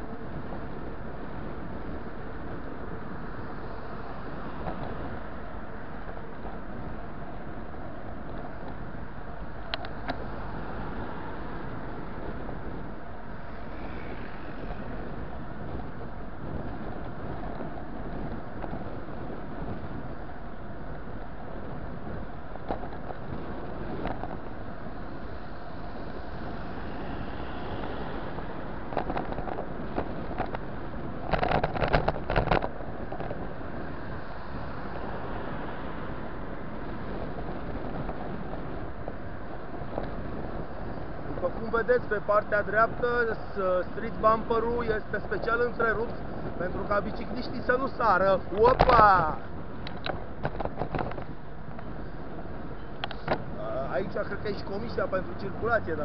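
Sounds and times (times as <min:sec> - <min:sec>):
road and traffic noise: 0:00.0 - 0:56.0
wind rush on microphone: 0:00.0 - 0:56.0.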